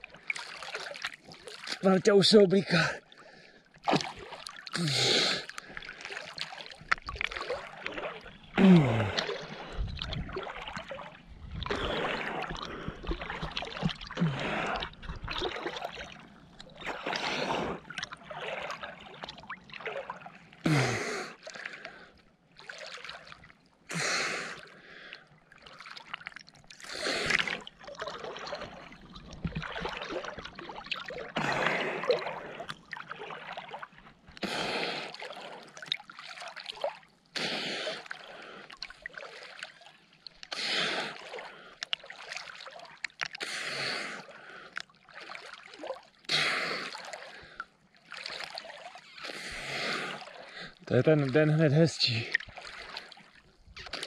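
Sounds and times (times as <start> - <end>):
swimming strokes splashing: 0.0 - 1.9, 3.0 - 22.0, 22.6 - 54.0
swimmer breathing heavily and gasping: 2.7 - 6.4, 8.5 - 10.0, 11.5 - 15.8, 16.8 - 17.9, 20.6 - 22.3, 23.9 - 25.9, 26.8 - 27.7, 31.4 - 32.8, 34.4 - 35.8, 37.3 - 39.6, 40.5 - 42.0, 43.4 - 45.4, 46.2 - 47.8, 49.1 - 50.9, 52.3 - 54.0.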